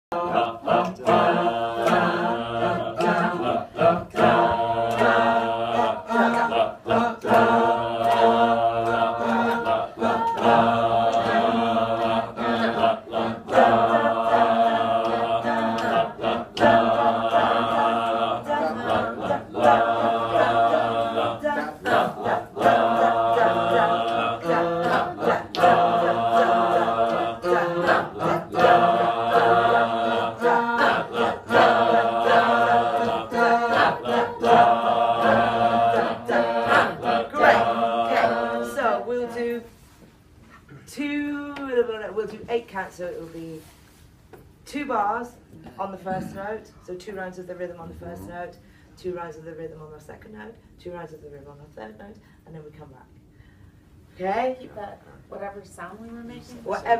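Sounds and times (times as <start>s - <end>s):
group singing unaccompanied: 0.0s - 39.8s, 46.0s - 46.5s.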